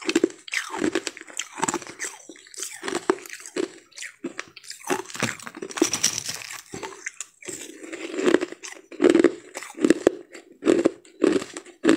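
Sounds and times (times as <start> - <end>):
crushed ice crunching: 4.8 - 8.3.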